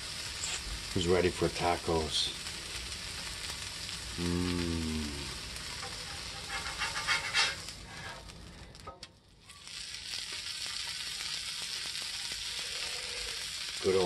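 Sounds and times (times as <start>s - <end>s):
taco sizzling in oil: 0.0s - 14.0s
metal spatula scraping griddle: 5.6s - 8.3s.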